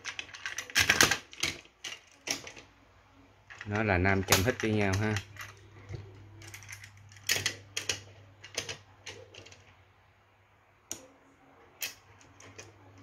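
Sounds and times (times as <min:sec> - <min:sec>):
toy train cars clicking: 0:00.0 - 0:02.7, 0:03.5 - 0:05.7, 0:06.4 - 0:09.7.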